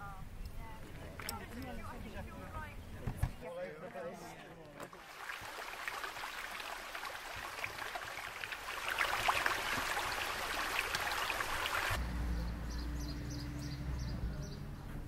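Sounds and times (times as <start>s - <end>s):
stream babbling over rocks: 4.9s - 12.0s.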